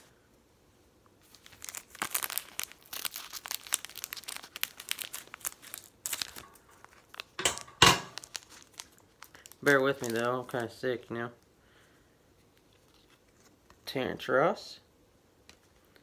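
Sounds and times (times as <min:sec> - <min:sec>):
foil wrapper crinkling: 0:01.2 - 0:11.5, 0:12.4 - 0:13.9.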